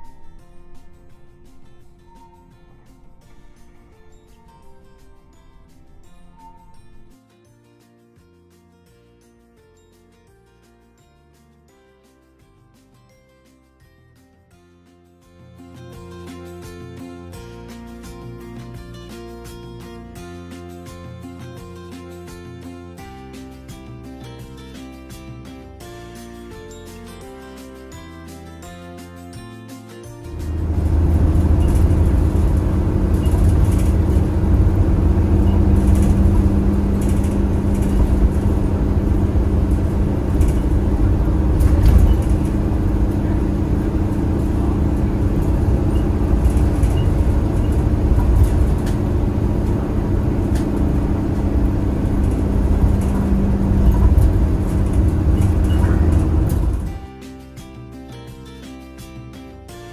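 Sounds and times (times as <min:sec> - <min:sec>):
bus engine drone: 0:00.0 - 0:07.2, 0:30.2 - 0:57.0
road rumble: 0:00.0 - 0:07.2, 0:30.2 - 0:57.0
light rattles: 0:30.3 - 0:57.0.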